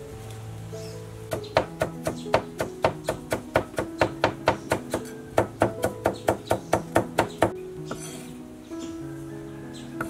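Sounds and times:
knife chopping leafy greens: 1.3s - 8.2s.

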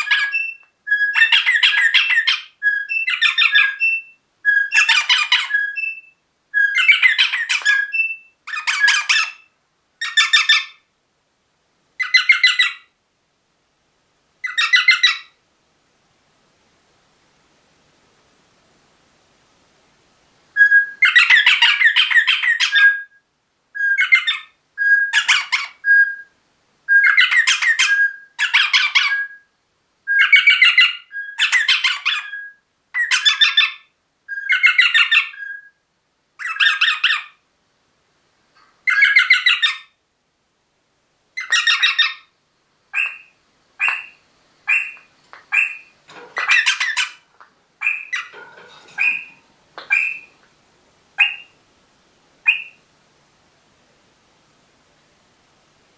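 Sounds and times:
parrot squawking: 0.0s - 10.8s, 12.0s - 12.9s, 14.4s - 15.3s, 20.6s - 23.1s, 23.8s - 26.1s, 26.9s - 29.4s, 30.1s - 35.6s, 36.4s - 37.4s, 38.9s - 39.9s, 41.4s - 42.3s, 42.9s - 50.4s, 51.2s - 51.6s, 52.4s - 52.8s.

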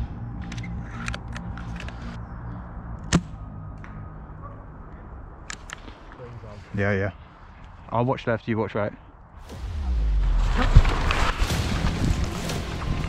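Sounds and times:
quiet background music: 0.0s - 5.8s.

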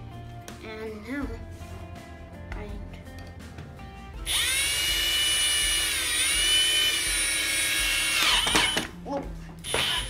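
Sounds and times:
cordless drill whining: 4.2s - 8.9s, 9.6s - 10.0s.

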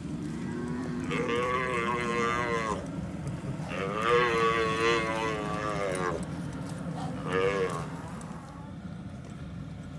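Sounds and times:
cattle bawling: 0.3s - 2.9s, 3.6s - 8.8s.

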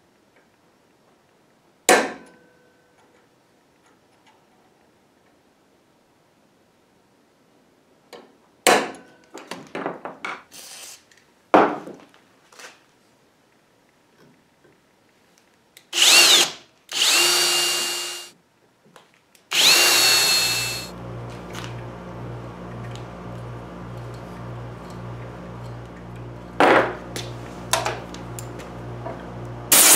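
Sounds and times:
handheld drill whining into metal: 16.0s - 18.4s, 19.5s - 20.9s.

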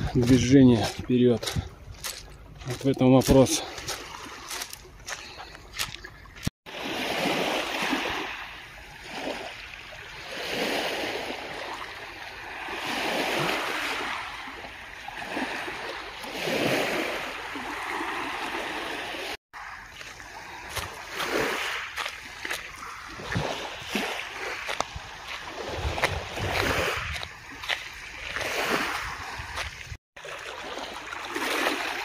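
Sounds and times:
waves washing on pebbly shore: 6.7s - 32.0s.

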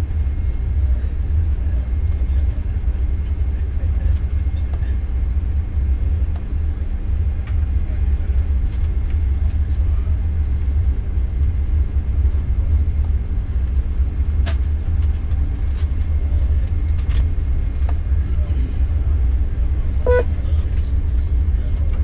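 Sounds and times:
aircraft cabin low rumble: 0.0s - 22.0s
faint steady whine: 0.0s - 22.0s.

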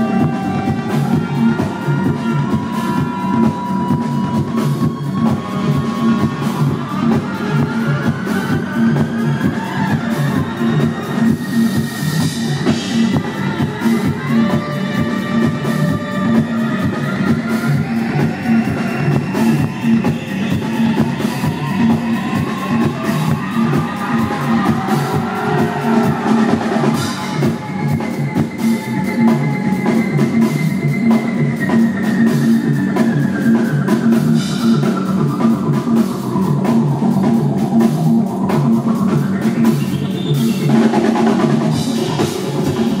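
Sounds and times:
background music with drum beat: 0.0s - 43.0s
rising sweep: 19.0s - 31.0s.

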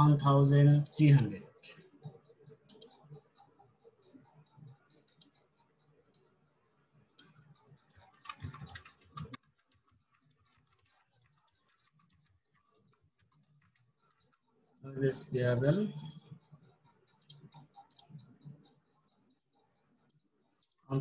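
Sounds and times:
keyboard typing clicks: 2.7s - 3.1s, 7.2s - 14.4s.

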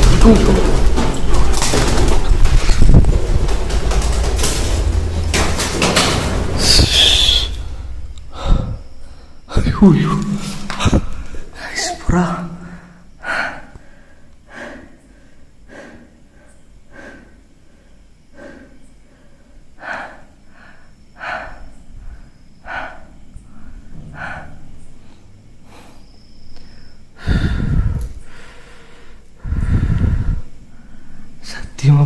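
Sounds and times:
loud low rumbling burst: 0.0s - 10.2s
person breathing heavily: 6.4s - 9.6s, 12.6s - 31.4s.

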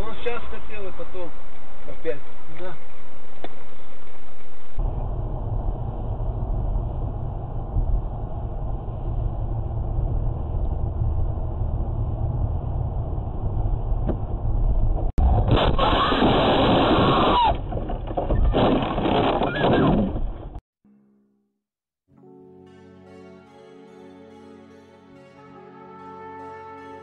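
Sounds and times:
car road and engine rumble: 0.0s - 15.8s
loud harsh crash noise: 15.2s - 17.7s.

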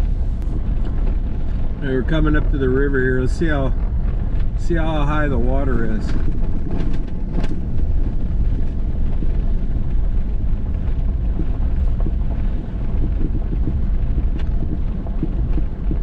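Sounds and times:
vehicle on gravel road: 0.0s - 16.0s.

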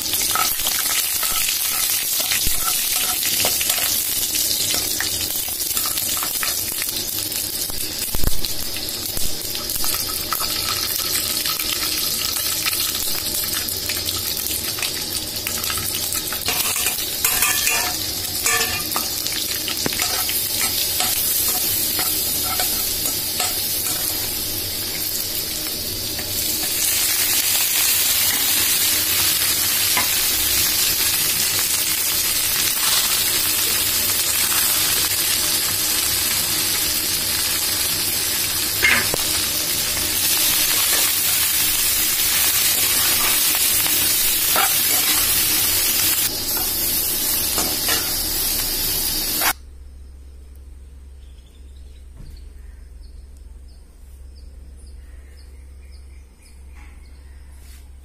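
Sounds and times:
oil sizzling in pan: 0.0s - 49.6s
steel ladle scraping pan: 16.4s - 19.3s, 19.9s - 24.1s.

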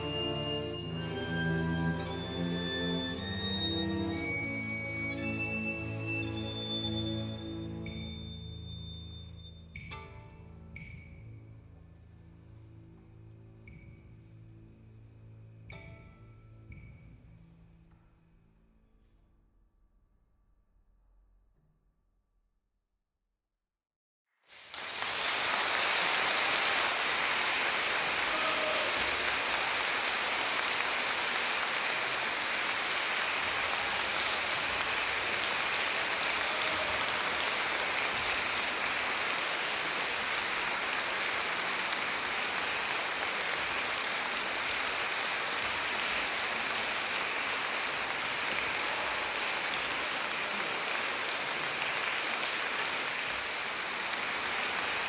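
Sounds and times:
audience applauding: 0.0s - 9.0s, 24.5s - 55.0s.

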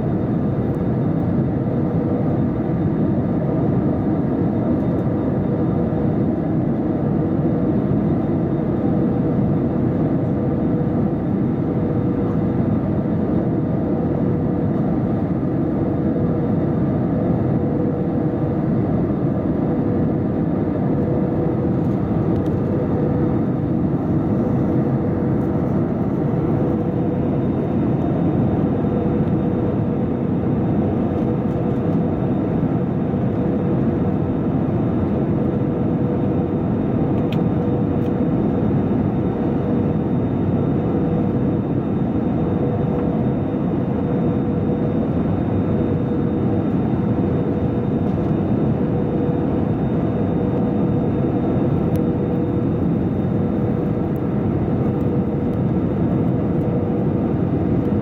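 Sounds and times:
airflow and jet engine rumble: 0.0s - 58.0s
steady mid-pitched hum: 21.3s - 31.0s.

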